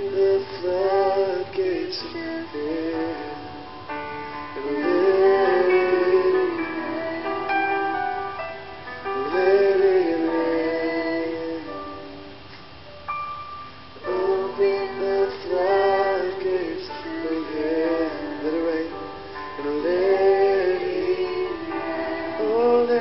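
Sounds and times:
keyboard: 0.0s - 23.0s
women singing held notes: 4.5s - 12.7s, 14.0s - 23.0s.

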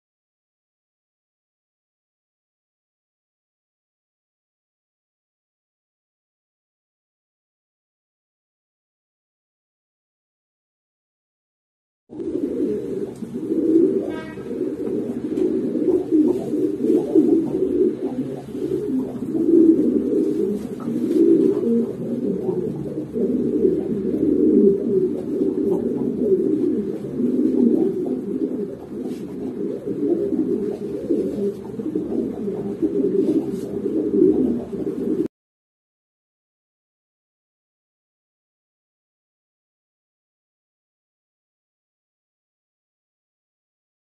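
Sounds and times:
pigeons cooing: 12.1s - 35.3s.

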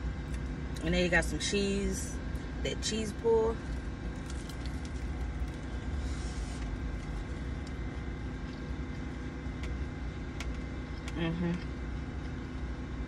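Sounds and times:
car idling hum: 0.0s - 13.0s
person chewing crunchy food: 3.6s - 13.0s.

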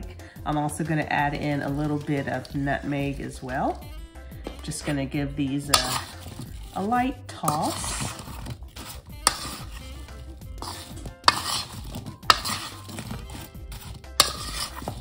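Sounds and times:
apple slices sliding in a bowl: 5.7s - 15.0s.

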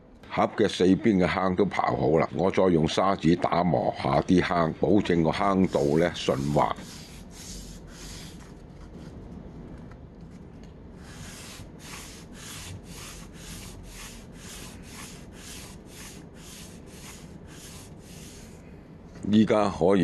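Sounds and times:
sandpaper rubbing on acrylic: 5.4s - 8.5s, 11.0s - 18.6s.

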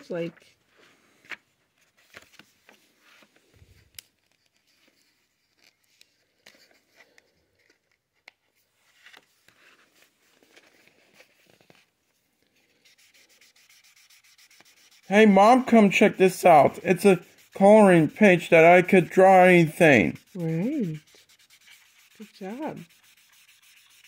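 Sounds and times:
handling of marker packaging: 0.0s - 24.0s
marker tip rubbing on paper: 12.6s - 24.0s.

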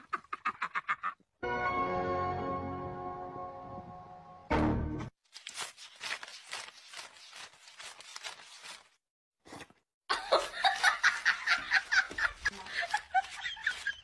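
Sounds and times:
person laughing: 0.0s - 1.3s, 10.1s - 14.0s.

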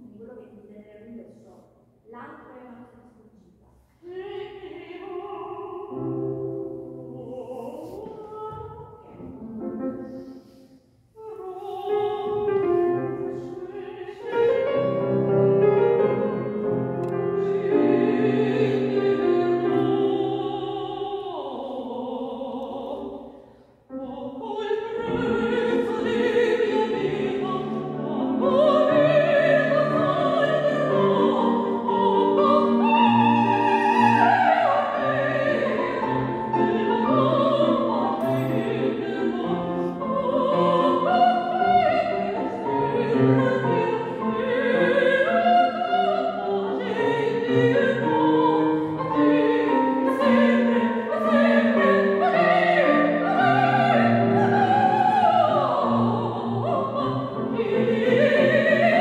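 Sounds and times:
soprano singing opera: 4.0s - 10.3s, 11.2s - 59.0s
piano accompaniment: 11.2s - 21.1s.

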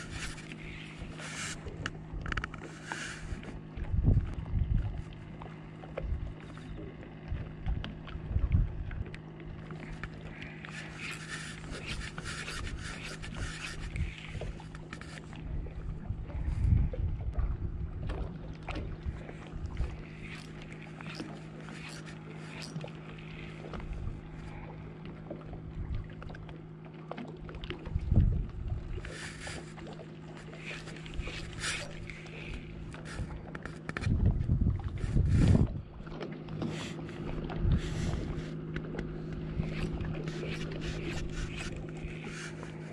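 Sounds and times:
wind rumbling on microphone: 0.0s - 5.4s, 6.0s - 24.6s, 27.8s - 29.8s, 30.4s - 42.9s
steady low hum: 0.0s - 42.9s
fishing reel ticking: 10.5s - 15.2s, 19.9s - 23.8s, 29.0s - 34.1s, 39.5s - 42.9s.

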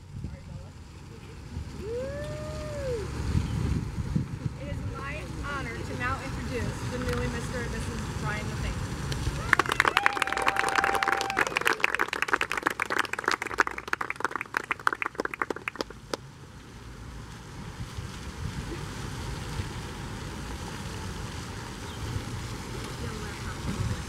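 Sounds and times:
people clapping: 9.1s - 16.2s.

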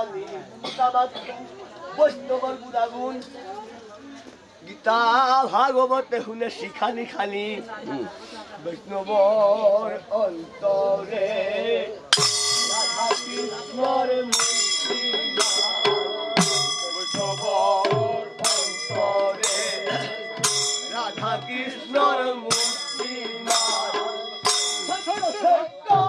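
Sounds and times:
hand cymbals clashing: 12.1s - 25.7s
low drum beats: 12.2s - 26.0s
wavering melody: 12.2s - 26.0s.

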